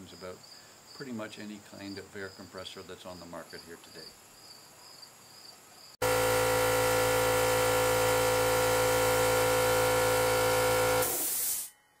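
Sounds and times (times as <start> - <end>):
air compressor running: 6.0 - 11.7
short hiss of air: 11.0 - 11.7.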